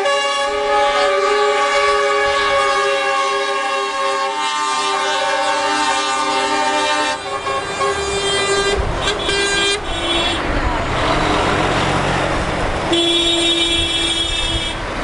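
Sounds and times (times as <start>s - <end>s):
lorry air horn blasts: 0.0s - 10.5s.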